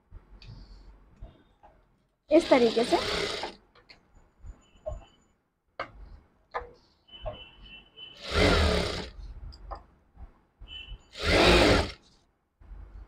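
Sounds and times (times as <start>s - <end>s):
sewing machine stitching: 2.3s - 3.6s, 8.2s - 9.2s, 11.2s - 12.0s.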